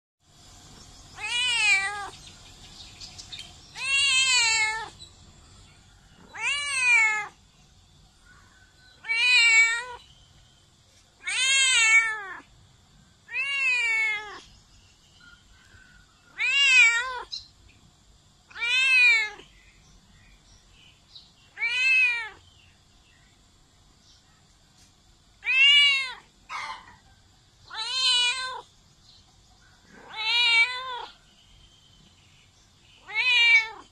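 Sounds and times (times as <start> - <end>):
cat meowing loudly: 1.2 - 2.2, 3.7 - 5.0, 6.2 - 7.4, 8.9 - 10.1, 11.2 - 12.5, 13.3 - 14.5, 16.3 - 17.4, 18.5 - 19.5, 21.5 - 22.4, 25.4 - 26.7, 27.6 - 28.7, 29.9 - 31.2, 33.0 - 33.9.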